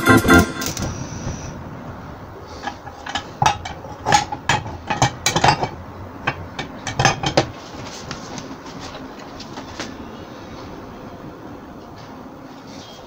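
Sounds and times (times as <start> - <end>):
metal pan clinking on grate: 2.6 - 7.5.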